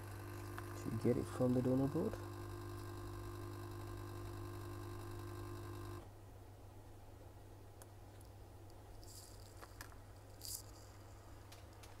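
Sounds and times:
electrical hum: 0.0s - 6.5s.

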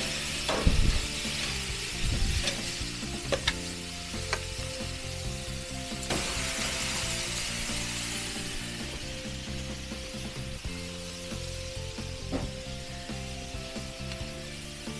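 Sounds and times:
steaks sizzling on a grill: 0.0s - 14.9s
metal tongs clicking on grate: 2.4s - 3.6s.

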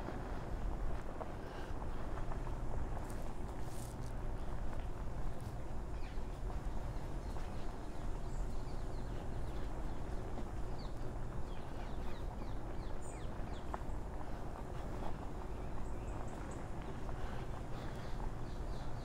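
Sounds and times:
small birds chirping: 5.5s - 19.0s.

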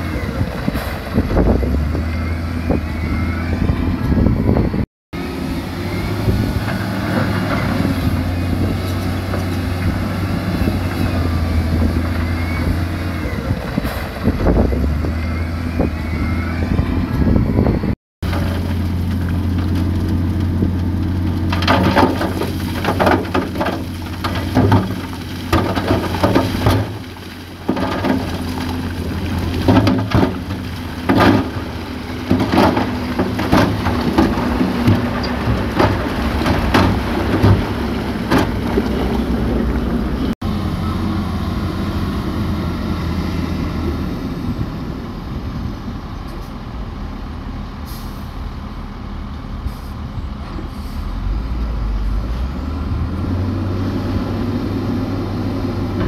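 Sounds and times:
diesel engine running: 0.0s - 56.0s
rock and soil clattering: 18.2s - 40.2s.

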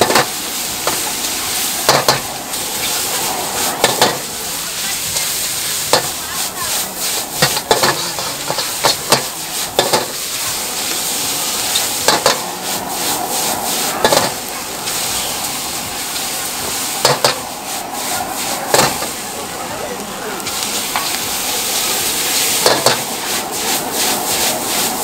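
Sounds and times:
noodles sizzling in wok: 0.0s - 25.0s
metal ladle clanking on wok: 12.0s - 12.5s.

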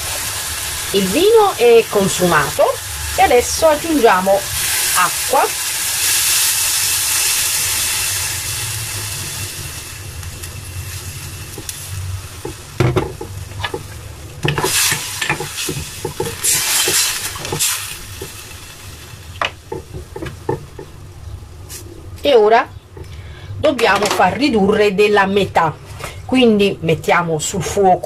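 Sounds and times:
water sizzling in hot pan: 0.0s - 20.9s.

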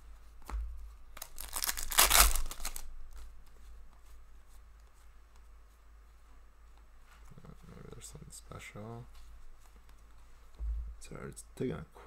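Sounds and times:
cards clicking: 1.2s - 2.8s
wrapper ripping: 1.2s - 2.9s.

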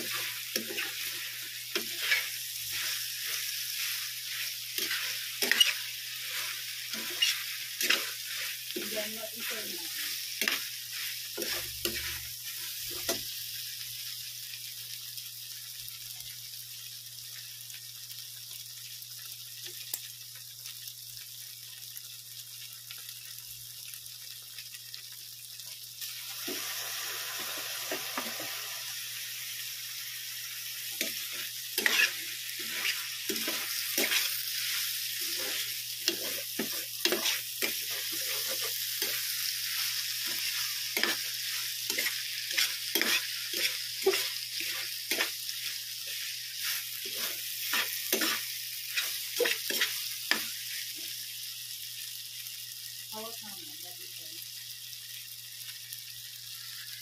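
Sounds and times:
metal spatula scraping a pan: 0.0s - 12.3s, 30.9s - 50.5s
meat and tofu sizzling in a pan: 0.0s - 57.0s
sauce poured into hot pan: 24.0s - 38.1s.

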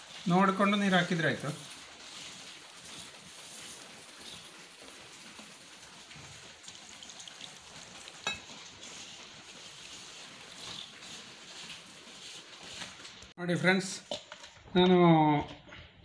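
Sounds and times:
flour scraping in a metal bowl: 0.0s - 5.6s, 8.2s - 13.9s.

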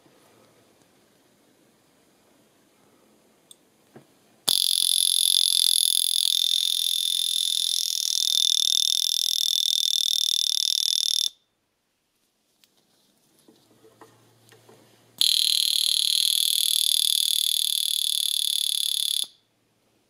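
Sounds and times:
wrist alarm pulsing buzz: 4.5s - 11.4s, 15.2s - 19.5s.

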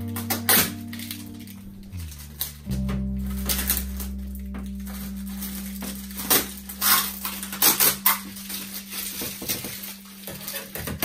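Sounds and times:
low steady hum: 0.0s - 11.0s
plastic wrapping crinkling: 4.8s - 11.0s.

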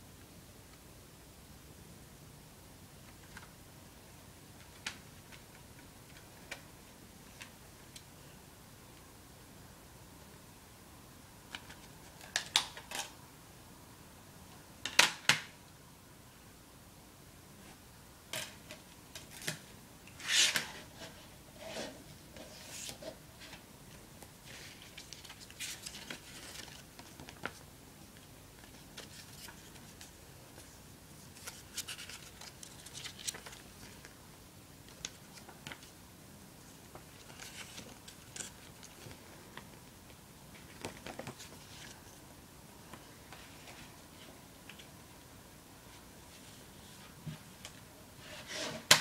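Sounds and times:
paper booklet pages rustling: 24.4s - 34.2s, 36.8s - 39.9s, 40.5s - 42.2s.

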